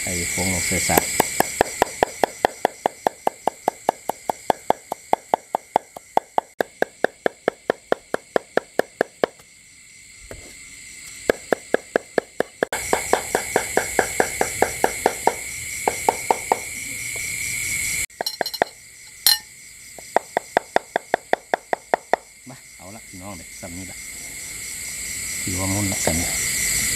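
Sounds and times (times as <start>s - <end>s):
crickets chirring: 0.0s - 26.9s
cleaver chopping on wooden block: 0.9s - 9.4s, 11.3s - 16.7s.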